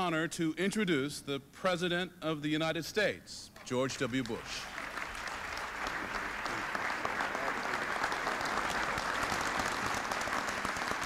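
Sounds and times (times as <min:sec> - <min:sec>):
large audience applauding: 0:04.0 - 0:11.0.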